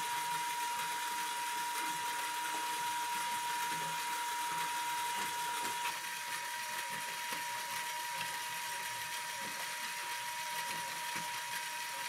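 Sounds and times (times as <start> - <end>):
electric motor whine: 0.0 - 12.0
plastic gears whirring and ticking: 0.0 - 12.0.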